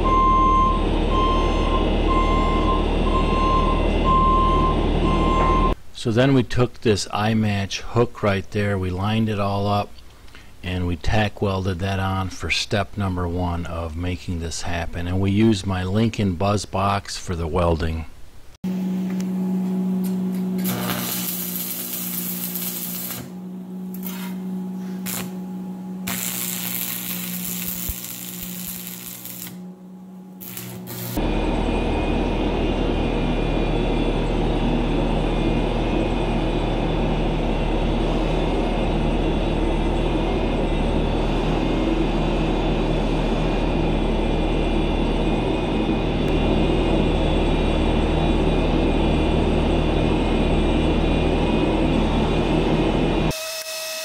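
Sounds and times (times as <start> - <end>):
diesel engine rumbling: 0.0 - 5.8, 31.2 - 53.3
welder hum: 18.7 - 54.0
welding arc crackling and hissing: 20.6 - 25.4, 26.0 - 29.6, 30.3 - 31.2.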